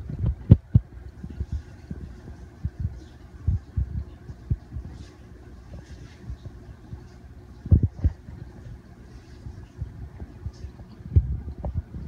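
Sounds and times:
dull low thumps: 0:00.0 - 0:05.0, 0:06.3 - 0:08.6, 0:09.8 - 0:12.0
steady low rumble: 0:00.0 - 0:12.0.

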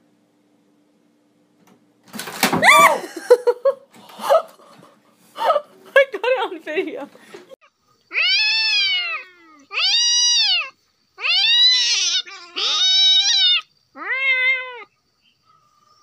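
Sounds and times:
cat meowing loudly: 0:08.1 - 0:14.9.

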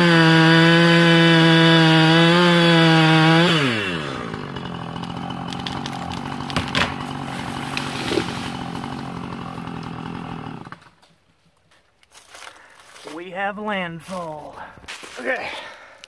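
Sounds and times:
chainsaw idling: 0:00.0 - 0:11.0
sharp cracks: 0:04.9 - 0:10.0.

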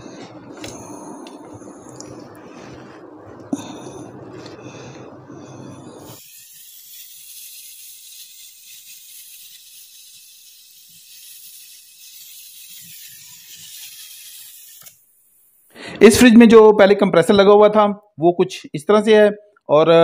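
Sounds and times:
torch flame hissing: 0:00.0 - 0:15.9.

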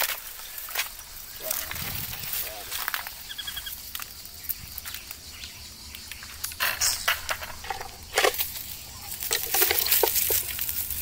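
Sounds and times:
dry leaves rustling and crunching: 0:00.0 - 0:04.6, 0:06.9 - 0:11.0.

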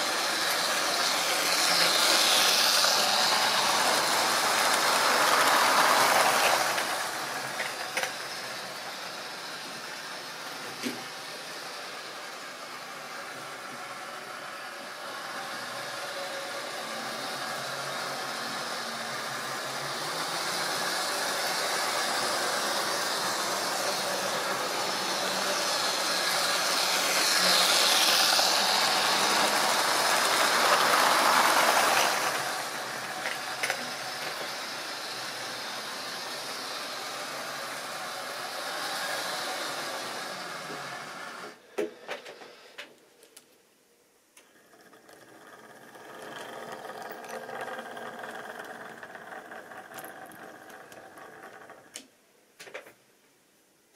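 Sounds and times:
wheels rattling over rail: 0:00.0 - 0:08.3, 0:20.0 - 0:35.4, 0:44.5 - 0:52.0
small motor whirring: 0:00.0 - 0:41.6, 0:44.5 - 0:52.0.

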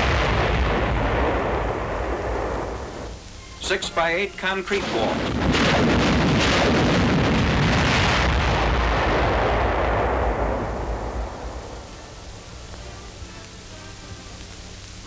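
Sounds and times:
rocket salvo bangs and roar: 0:00.0 - 0:03.8, 0:04.7 - 0:12.0.

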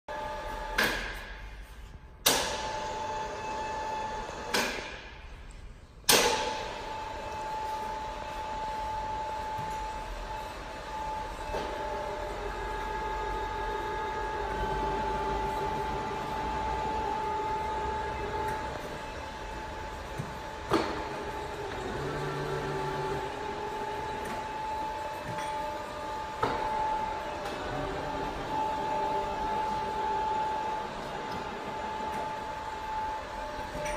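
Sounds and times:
milling machine motor whine: 0:06.8 - 0:33.9.

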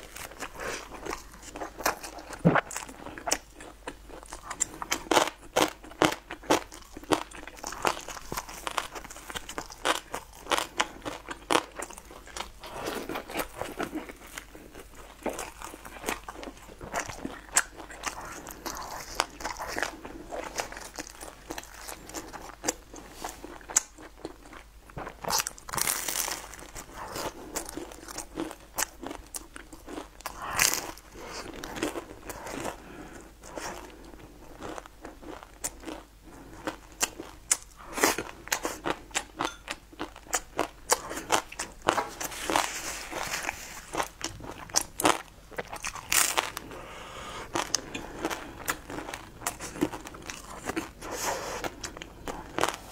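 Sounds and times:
crunchy chewing: 0:00.0 - 0:52.9.

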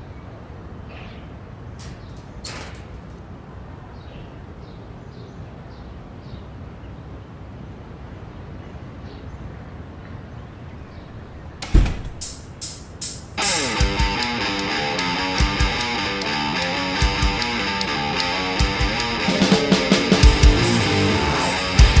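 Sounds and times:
distant traffic rumble: 0:00.0 - 0:22.0
heavy thump: 0:11.2 - 0:12.6.

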